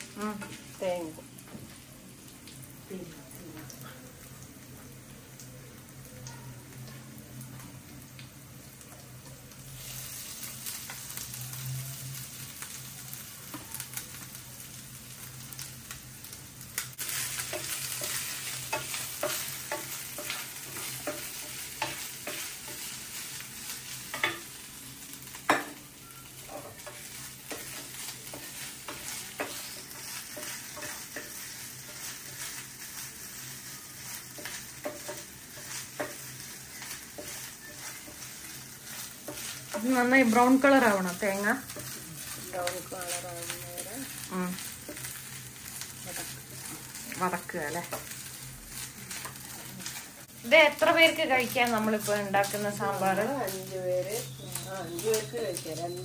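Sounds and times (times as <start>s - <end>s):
coconut sizzling in a pan: 0.0s - 56.0s
spatula scraping a pan: 26.4s - 40.5s.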